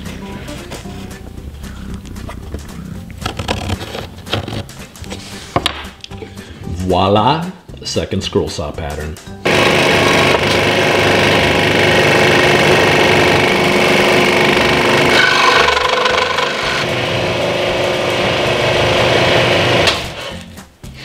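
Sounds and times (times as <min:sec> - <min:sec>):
scroll saw cutting wood: 0:09.5 - 0:20.4.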